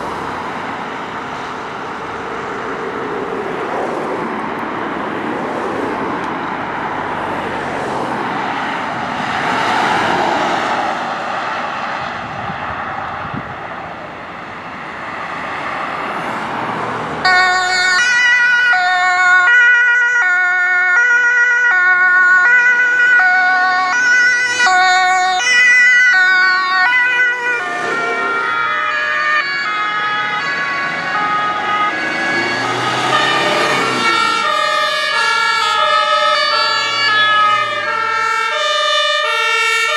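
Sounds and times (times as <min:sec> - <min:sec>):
vehicle and road noise: 0:00.0 - 0:39.9
two-tone emergency siren: 0:15.2 - 0:39.9.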